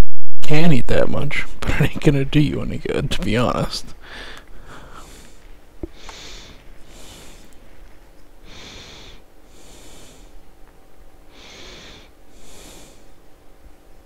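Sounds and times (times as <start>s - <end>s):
person breathing heavily: 4.0s - 10.5s, 11.3s - 13.3s.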